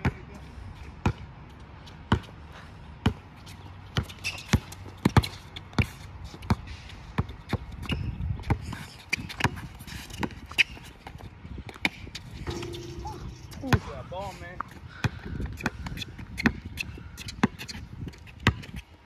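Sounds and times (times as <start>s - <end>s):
basketball bouncing on hard court: 4.0s - 6.6s, 15.0s - 17.8s, 18.4s - 18.8s.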